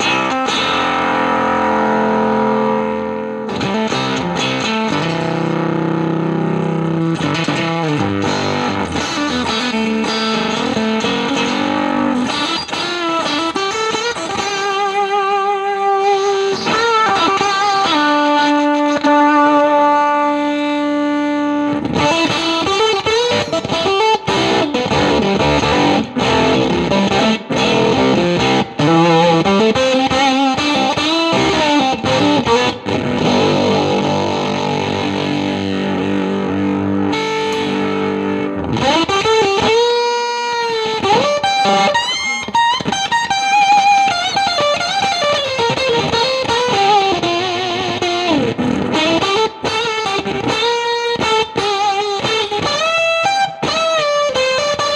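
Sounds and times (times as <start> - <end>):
fuzzy electric guitar: 0.0 - 54.9.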